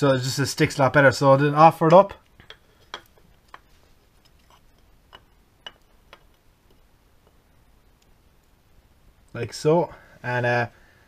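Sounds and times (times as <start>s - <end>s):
light metal clicks and taps: 2.2s - 7.4s.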